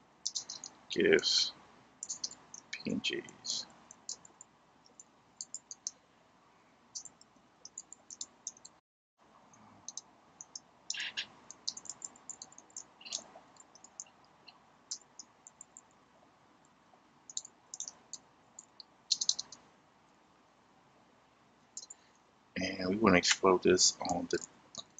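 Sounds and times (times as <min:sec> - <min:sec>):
keyboard keys clicking: 0:00.2 - 0:00.8, 0:02.0 - 0:02.9, 0:09.9 - 0:14.1, 0:17.3 - 0:18.0, 0:19.1 - 0:19.6.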